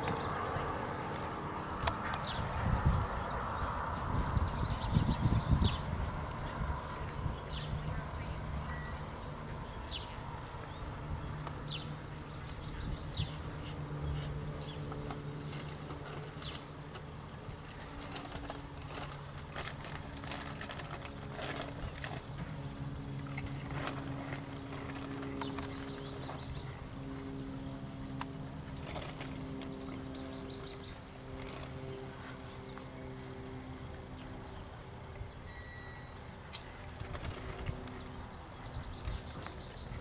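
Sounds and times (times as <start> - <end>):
steady low hum: 0.0 - 40.0
horse hoofbeats on sand: 10.6 - 34.5.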